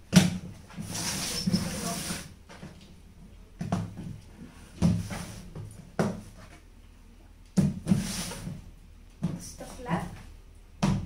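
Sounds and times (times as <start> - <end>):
plastic box scraping on tiles: 0.8 - 2.3.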